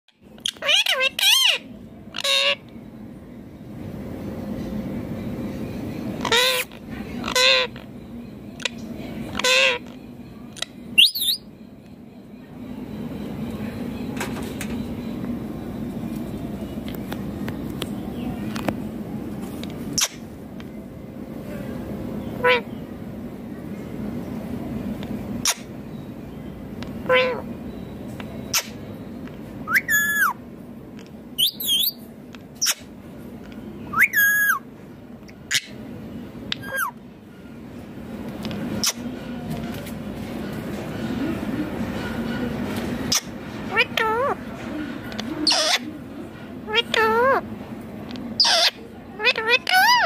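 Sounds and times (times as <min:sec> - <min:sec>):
steady low hum: 0:00.1 - 0:50.0
parakeet shrill call: 0:00.4 - 0:02.6, 0:10.6 - 0:11.5, 0:29.6 - 0:30.4, 0:31.4 - 0:32.0, 0:33.9 - 0:34.7, 0:36.5 - 0:37.0, 0:48.4 - 0:50.0.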